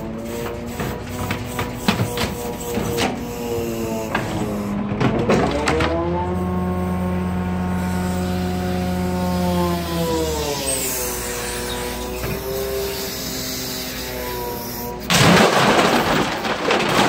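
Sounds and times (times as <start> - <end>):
hydraulic crane working: 0.0 - 17.0
truck engine running: 0.0 - 17.0
metal lockers crunching: 15.0 - 17.0.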